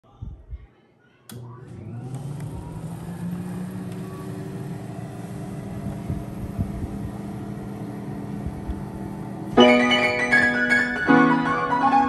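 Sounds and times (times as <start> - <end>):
electric suction pump humming: 1.3 - 10.2.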